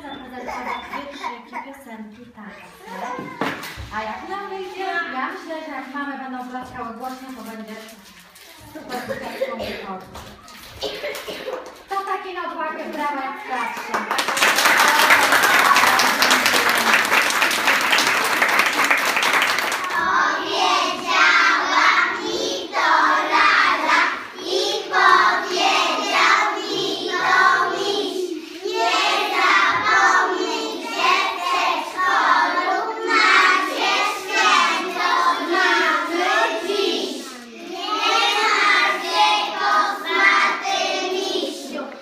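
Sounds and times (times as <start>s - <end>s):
audience clapping: 13.7s - 20.1s
children singing together: 19.7s - 42.0s.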